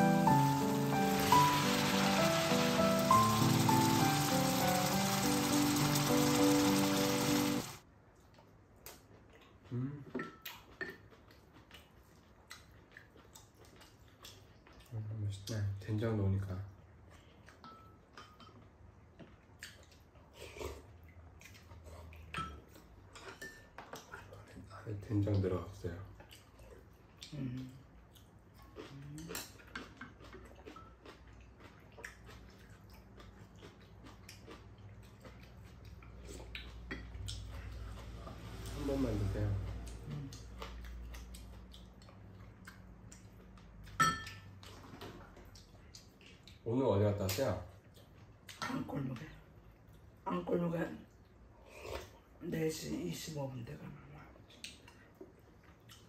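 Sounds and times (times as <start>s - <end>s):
waltz music: 0.0s - 7.7s
pan sizzling: 0.0s - 7.8s
soft eating mouth sounds: 8.1s - 15.9s, 16.6s - 38.7s, 39.6s - 46.7s, 47.3s - 50.3s, 51.0s - 52.4s, 53.8s - 56.0s
spoons clinking against bowls: 43.9s - 44.5s.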